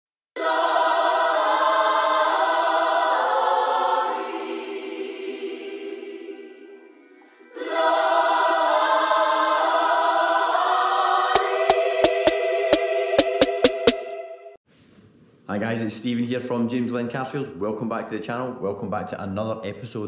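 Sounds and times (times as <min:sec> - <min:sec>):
music with choir-like voices: 0:00.4 - 0:14.6.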